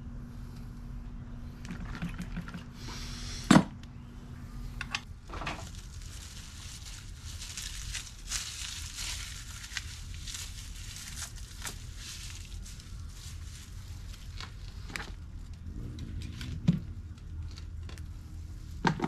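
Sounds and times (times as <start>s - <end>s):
plastic sheeting crinkling: 5.2s - 15.6s.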